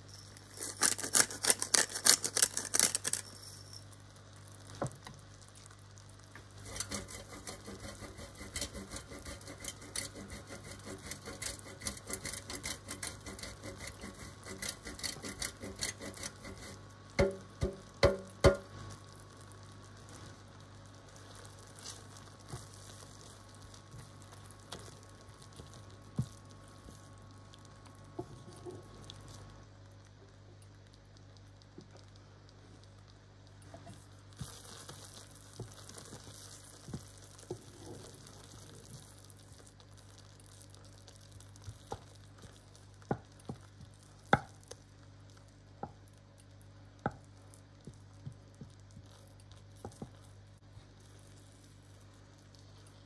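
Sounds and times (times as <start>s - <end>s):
sauce simmering and popping: 28.9s - 52.8s.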